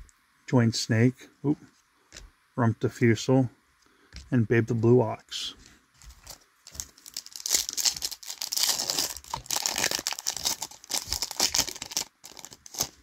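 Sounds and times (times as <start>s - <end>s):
foil wrapper tearing and crinkling: 6.1s - 13.0s.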